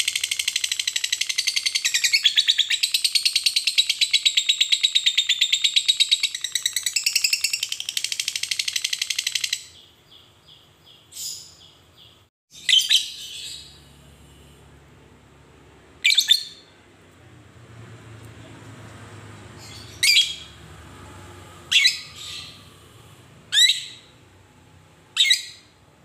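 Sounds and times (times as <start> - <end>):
lovebird chattering trill: 21.7 - 22.6.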